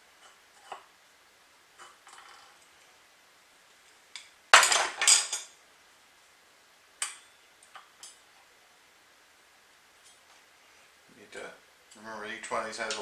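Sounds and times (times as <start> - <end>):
metal parts clattering: 4.6 - 5.5.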